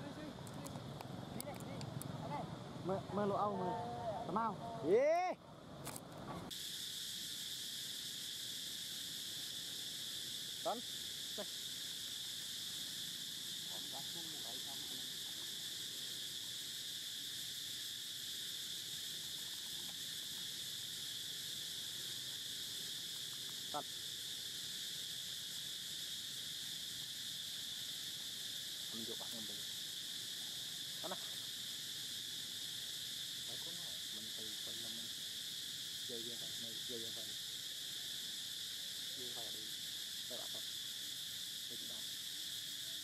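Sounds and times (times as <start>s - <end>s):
insects droning: 0.0s - 43.0s.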